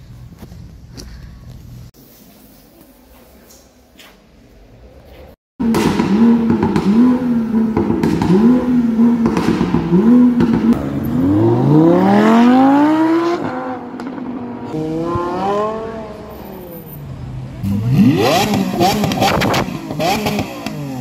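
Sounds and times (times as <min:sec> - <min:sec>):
sports car engine revving: 0:05.6 - 0:16.8, 0:17.4 - 0:21.0.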